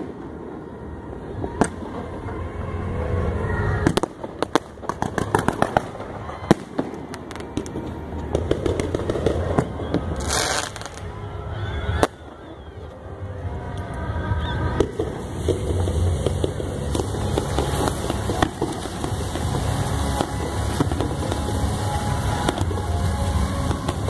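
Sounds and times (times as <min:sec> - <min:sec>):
firework bangs: 0:00.0 - 0:12.7, 0:14.6 - 0:24.0
firework pops and crackles: 0:03.8 - 0:11.1, 0:14.7 - 0:24.0.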